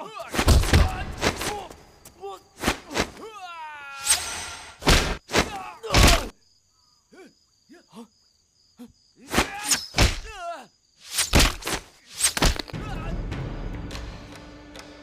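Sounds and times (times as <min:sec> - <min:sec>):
crickets chirring: 0:00.0 - 0:12.8
punches and blows: 0:00.2 - 0:01.8, 0:04.8 - 0:06.3, 0:09.2 - 0:10.4, 0:11.1 - 0:12.8.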